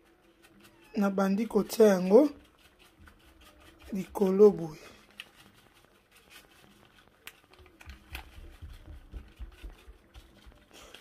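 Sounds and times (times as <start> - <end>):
plastic packet crinkling: 4.0 - 11.0.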